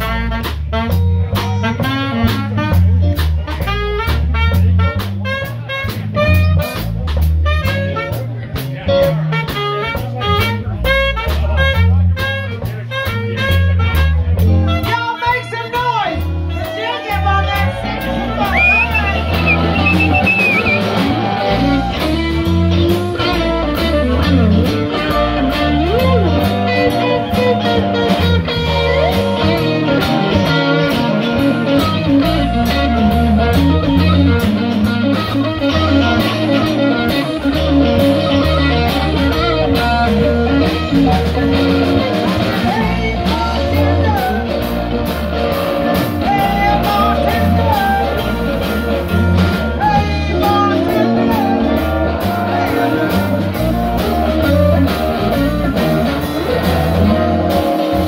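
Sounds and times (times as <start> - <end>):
drum kit: 0.0 - 15.1, 15.8 - 58.0
electric guitars: 0.0 - 58.0
saxophone holding notes: 18.2 - 34.4.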